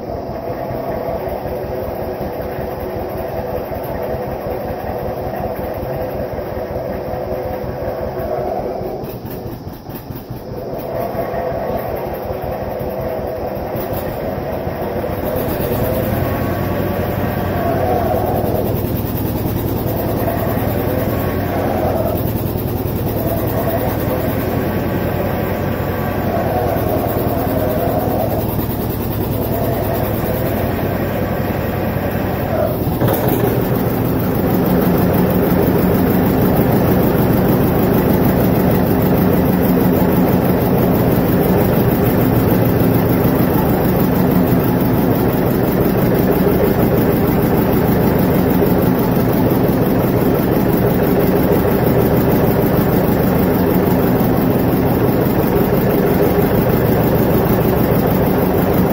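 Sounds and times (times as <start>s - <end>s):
tractor engine running: 0.0s - 58.9s.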